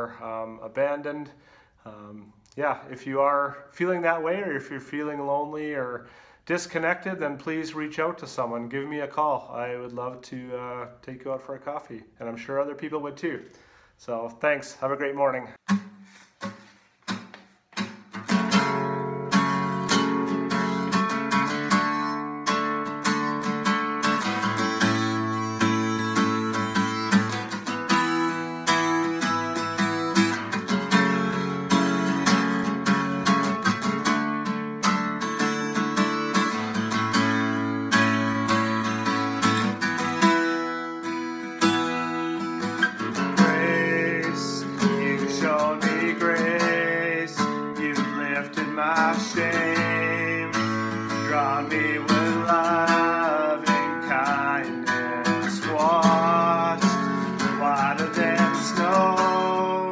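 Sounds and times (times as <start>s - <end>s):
acoustic guitar strumming: 15.6s - 59.9s
man singing: 42.9s - 59.9s.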